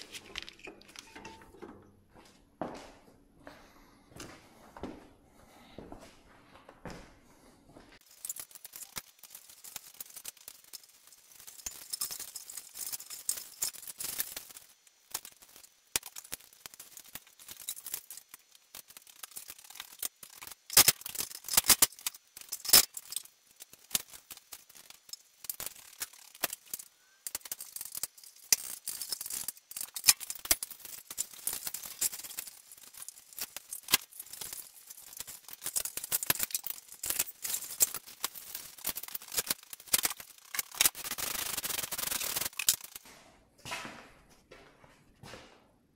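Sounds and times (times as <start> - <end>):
scraping and rubbing on metal parts: 0.0 - 1.7, 8.0 - 43.0.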